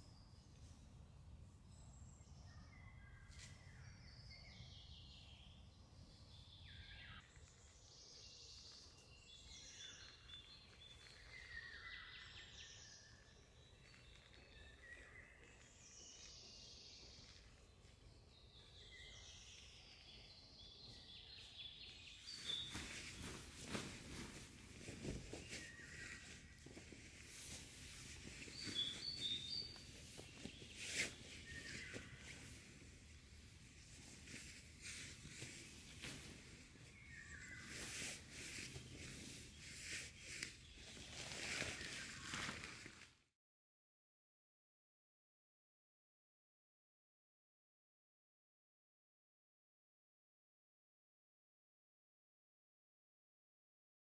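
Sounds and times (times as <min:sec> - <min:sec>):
soft rustling and crackling: 0:22.0 - 0:43.2.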